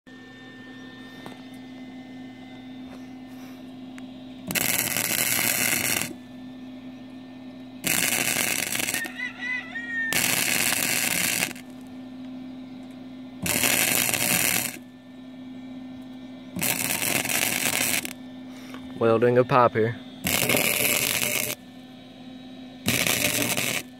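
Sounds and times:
steady low hum: 0.1 - 23.9
crackling welding arc: 4.5 - 6.2, 7.8 - 11.9, 13.4 - 14.8, 16.6 - 18.2, 20.2 - 21.6, 22.8 - 23.9.

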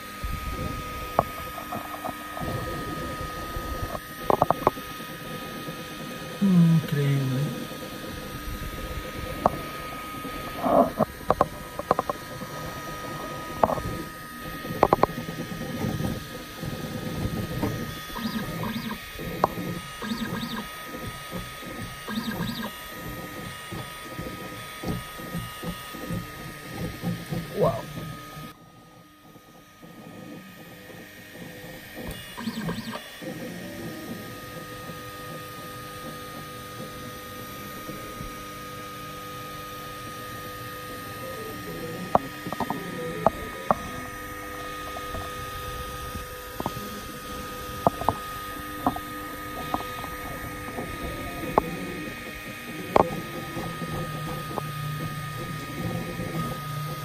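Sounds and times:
steady hum: 0.0 - 57.0
stepper motors whirring: 0.0 - 57.0
sharp irregular clicks: 17.6 - 23.2, 32.0 - 33.1.

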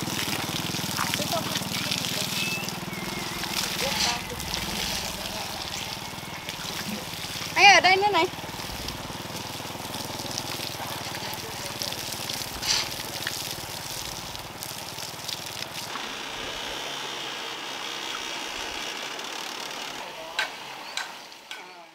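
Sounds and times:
water flowing: 0.0 - 20.6
low mechanical hum: 12.3 - 21.0.

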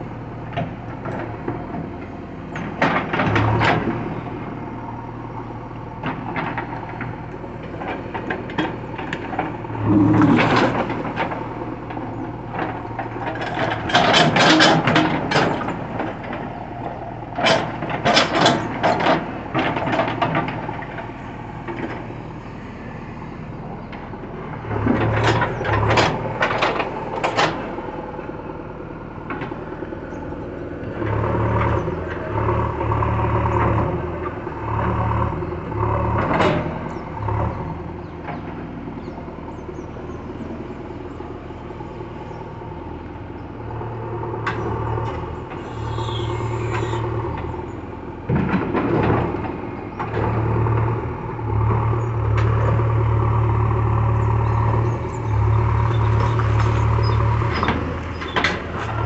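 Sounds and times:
diesel engine running: 0.0 - 59.0
clanking and scraping: 7.8 - 11.4, 12.6 - 16.4.

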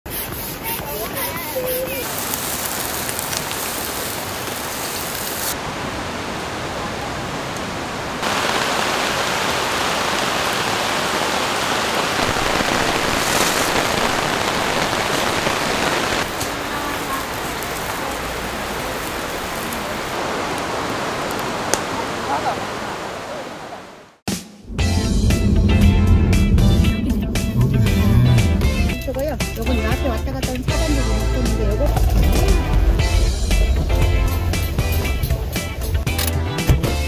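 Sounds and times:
heavy rain pouring: 0.6 - 24.2, 24.8 - 37.0
meat sizzling on a grill: 2.0 - 5.6, 12.2 - 19.8.

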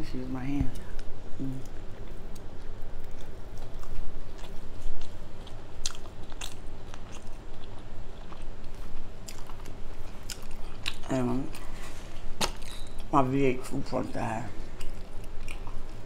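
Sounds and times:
chewing and biting food: 2.0 - 13.1, 14.6 - 16.0.

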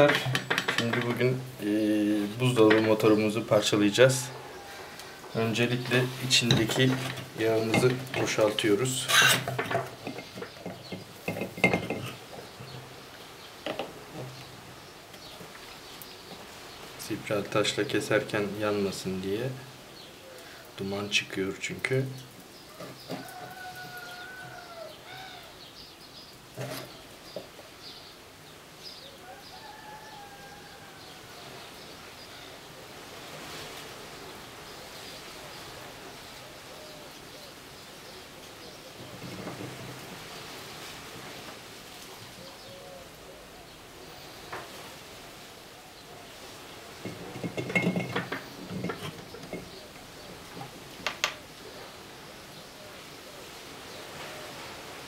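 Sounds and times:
metallic rattling and clinking: 0.0 - 1.3, 9.0 - 12.7, 47.0 - 49.8
birds chirping: 0.0 - 55.0.

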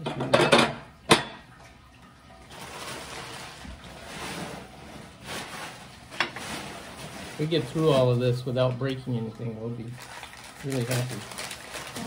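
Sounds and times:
packaging rustling: 2.5 - 9.0, 9.8 - 12.0.

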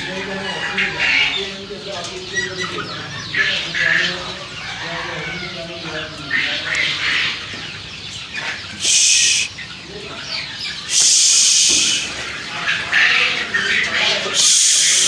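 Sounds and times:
young chickens clucking and chirping: 0.0 - 15.0
loud hissing bursts: 8.8 - 9.5, 10.9 - 12.1, 14.4 - 15.0.

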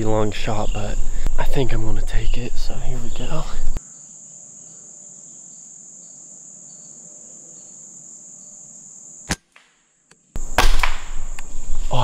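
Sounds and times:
crickets and insects buzzing: 0.0 - 12.0
air rifle shot: 10.4 - 11.4.

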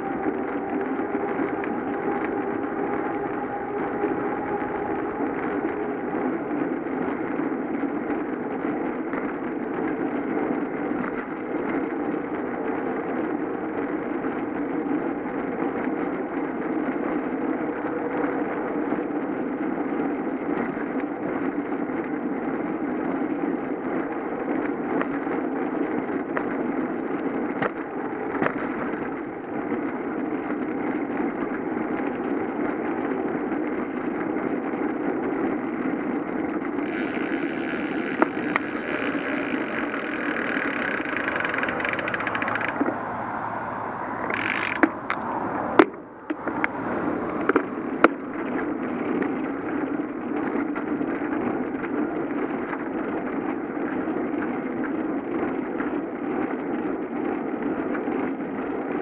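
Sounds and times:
faint hum: 0.0 - 11.4
bicycle road and wind noise: 0.0 - 59.0.

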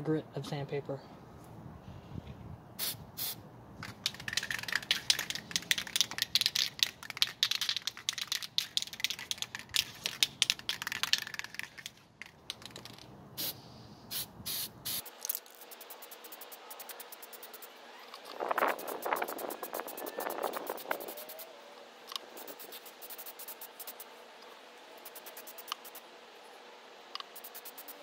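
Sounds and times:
short spray bursts: 2.8 - 11.7, 13.4 - 17.7, 18.6 - 21.5, 22.3 - 24.1, 25.0 - 26.0, 27.2 - 28.0
spray can clicking: 2.8 - 17.6, 27.2 - 28.0
aerosol hiss: 13.4 - 17.7.

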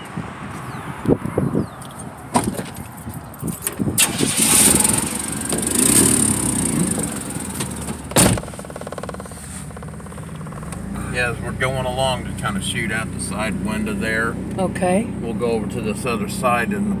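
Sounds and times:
truck door and body clunks: 1.8 - 11.0
truck engine running: 3.0 - 17.0
door slamming shut: 7.6 - 8.7.

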